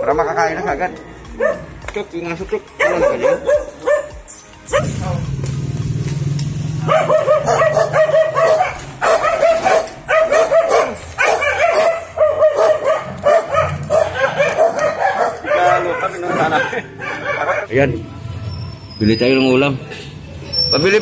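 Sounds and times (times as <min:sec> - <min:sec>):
dog barking: 0:01.4 - 0:01.7, 0:02.8 - 0:05.1, 0:06.8 - 0:17.7.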